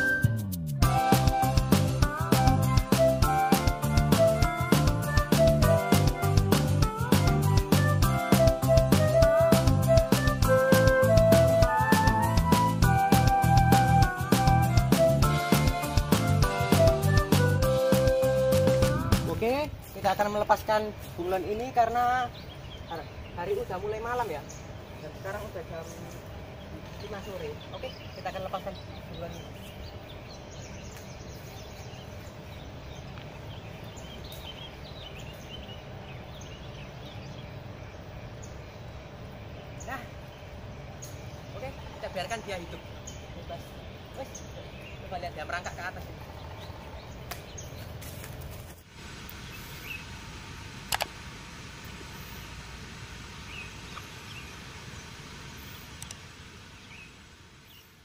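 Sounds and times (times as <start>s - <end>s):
short high chirps: 0.0s - 1.2s
small birds chirping: 0.0s - 58.0s
steady low background noise: 10.5s - 58.0s
low outdoor rumble: 16.2s - 58.0s
quick clicks: 50.9s - 51.2s.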